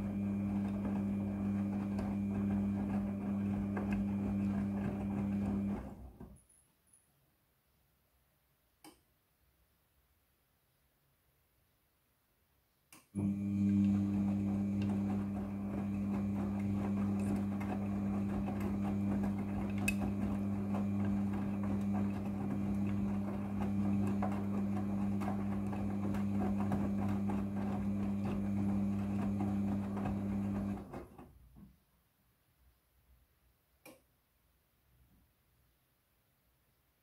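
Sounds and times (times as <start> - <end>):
washing machine motor hum: 0.0 - 6.3, 13.2 - 31.4.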